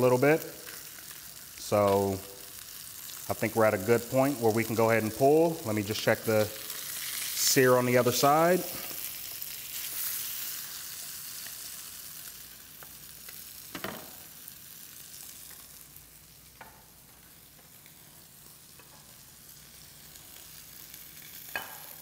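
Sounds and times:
fish fillets sizzling in oil: 0.0s - 22.0s.

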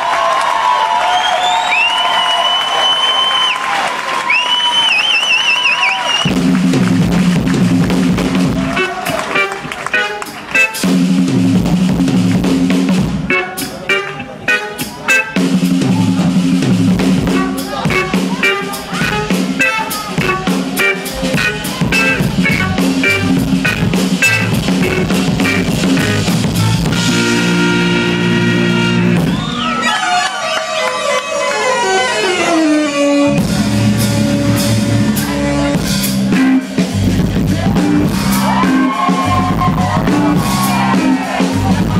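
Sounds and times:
drum solo: 6.2s - 29.6s, 33.3s - 41.9s
sliding pitched tones: 8.3s - 11.6s, 13.2s - 29.3s.

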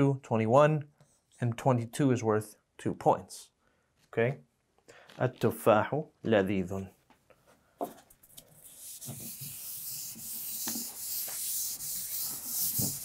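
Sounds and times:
rubbing on writing surface: 8.3s - 13.0s.

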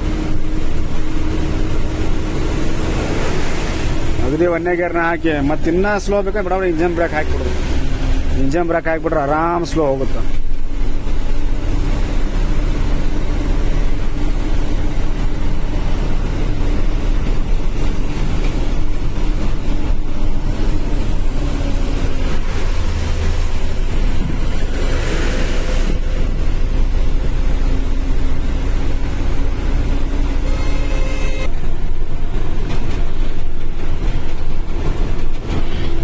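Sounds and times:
truck engine droning: 0.0s - 36.0s
tyres hissing on wet road: 0.1s - 10.4s, 20.5s - 30.8s.

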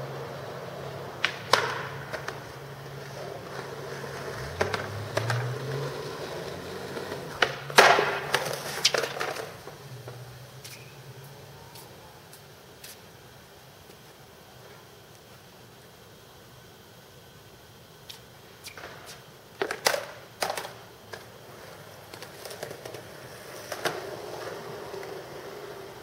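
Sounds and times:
skateboard wheels rolling on concrete: 0.0s - 26.0s
steady low hum: 0.0s - 26.0s
skateboard crashing and tumbling: 1.1s - 10.2s, 18.8s - 26.0s
skateboard tail pops: 1.2s - 2.4s, 6.9s - 10.9s, 18.1s - 21.3s.

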